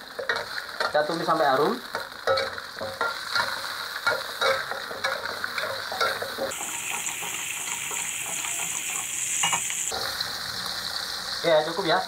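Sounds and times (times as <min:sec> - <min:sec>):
food sizzling in oil: 0:00.0 - 0:12.0
metal spatula scraping pan: 0:02.3 - 0:11.4.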